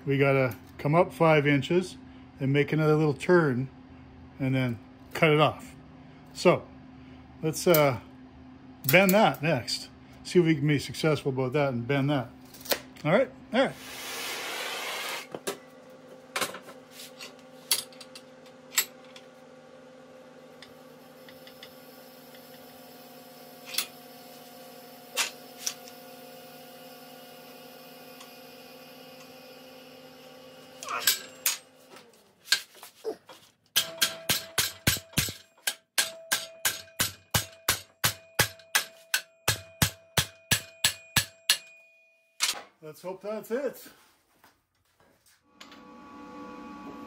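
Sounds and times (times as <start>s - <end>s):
hammer striking steel: 33.8s - 42.6s.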